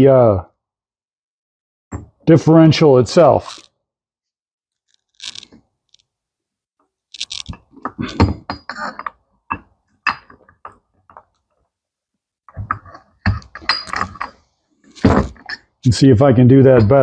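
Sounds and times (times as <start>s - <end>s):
steel parts clinking and knocking: 7.2s - 10.8s, 12.6s - 14.4s.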